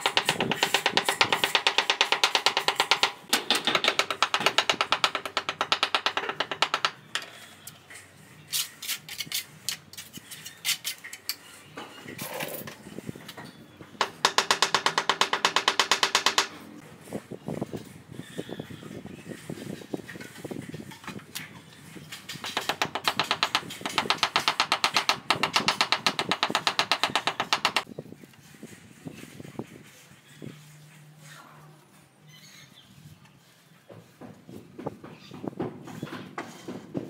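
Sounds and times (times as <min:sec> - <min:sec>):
rapid tapping on ceramic tiles: 0:00.0 - 0:07.2, 0:14.0 - 0:16.5, 0:22.4 - 0:27.9
trowel clinking and scraping on tile: 0:00.0 - 0:13.6.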